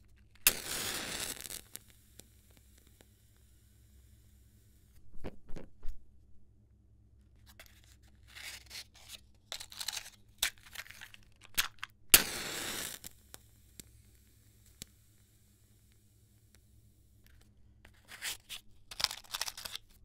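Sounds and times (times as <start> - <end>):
match striking and flaring: 0.4 - 3.4, 8.3 - 15.0
matchstick scraping against box: 0.5 - 1.9, 7.4 - 13.1, 17.9 - 20.0
matchbox clicks and taps: 9.5 - 15.0, 18.5 - 20.0.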